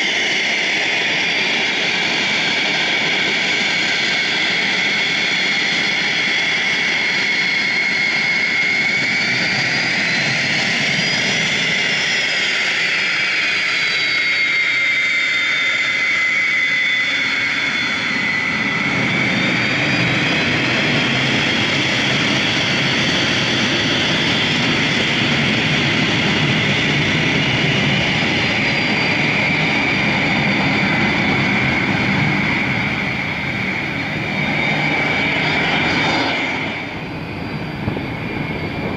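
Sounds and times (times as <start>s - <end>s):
jet engine high whine: 0.0s - 38.9s
rushing jet exhaust noise: 0.0s - 38.9s.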